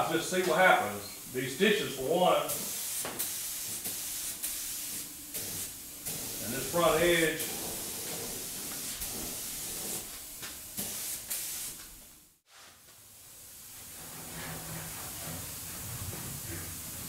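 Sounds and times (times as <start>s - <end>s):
faint steady hiss: 0.0s - 17.0s
paint spray gun hissing: 2.5s - 11.9s.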